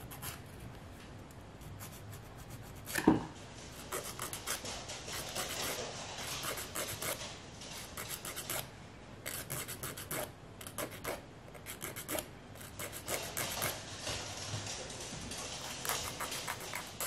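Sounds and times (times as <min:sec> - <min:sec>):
nail file rasping: 0:09.3 - 0:13.7.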